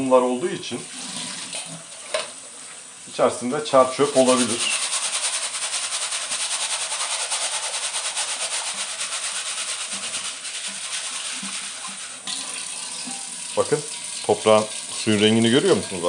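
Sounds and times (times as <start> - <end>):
tap water running: 0.4 - 16.0
seeds rattling in a strainer: 4.2 - 12.2.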